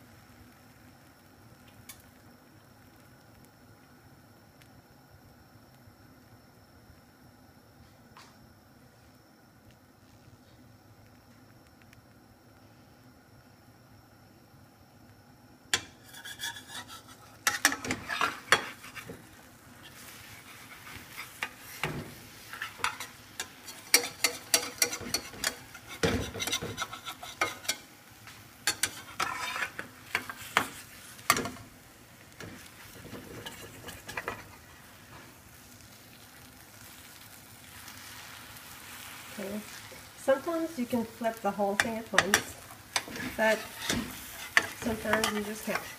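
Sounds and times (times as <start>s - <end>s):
eggs sizzling: 0.0s - 7.8s, 8.7s - 45.9s
spatula scraping a frying pan: 15.8s - 27.9s, 28.6s - 31.6s, 32.4s - 34.7s, 41.8s - 45.9s.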